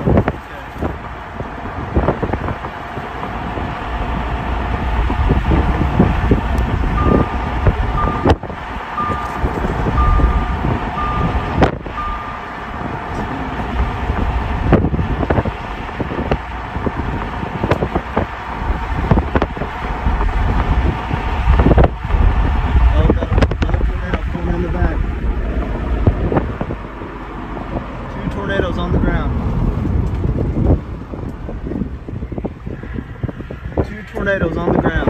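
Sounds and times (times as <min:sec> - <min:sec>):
car road noise: 0:00.0 - 0:35.0
wind buffeting microphone: 0:00.0 - 0:35.0
short electronic beeps: 0:07.0 - 0:07.4, 0:08.0 - 0:08.4, 0:09.0 - 0:12.6.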